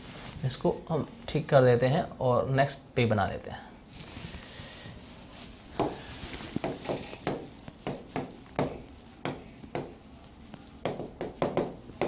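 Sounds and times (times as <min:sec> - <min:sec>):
marker writing on whiteboard: 0:05.8 - 0:12.0.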